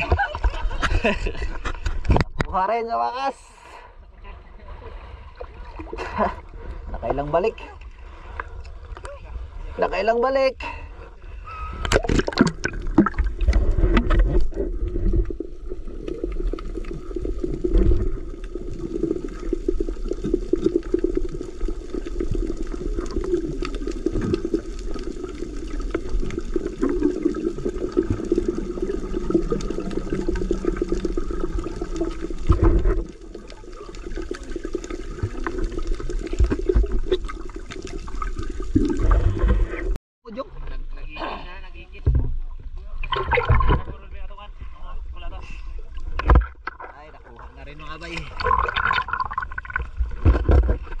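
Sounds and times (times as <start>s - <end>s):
bubbling and crackling: 0.0s - 2.6s, 11.6s - 40.0s, 43.0s - 44.0s, 45.8s - 51.0s
muffled underwater rush: 10.7s - 40.0s, 42.6s - 51.0s
splashing water: 11.8s - 39.8s, 43.0s - 44.0s, 46.0s - 51.0s.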